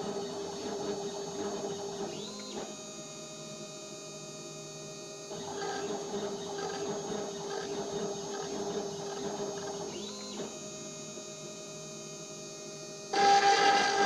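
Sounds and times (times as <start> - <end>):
machine whine: 5.3 - 14.0
milling machine spindle hum: 13.1 - 14.0.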